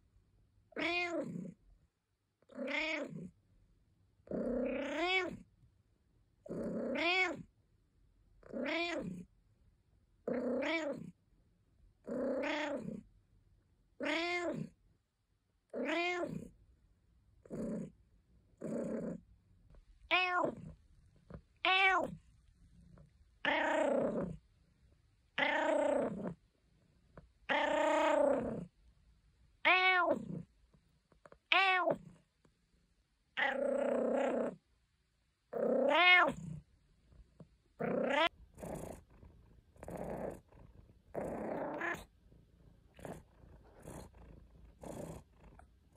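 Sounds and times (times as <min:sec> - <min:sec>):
cat meowing: 0:00.8 - 0:01.4, 0:02.6 - 0:03.2, 0:04.6 - 0:05.4, 0:06.7 - 0:07.5, 0:08.6 - 0:09.2, 0:10.5 - 0:11.0, 0:12.2 - 0:12.9, 0:14.0 - 0:14.7, 0:15.8 - 0:16.5, 0:20.1 - 0:20.8, 0:21.6 - 0:22.2, 0:23.4 - 0:24.2, 0:25.4 - 0:26.2, 0:29.6 - 0:30.4, 0:31.4 - 0:32.1, 0:33.4 - 0:33.7, 0:35.6 - 0:36.6, 0:37.8 - 0:38.4, 0:41.2 - 0:42.1.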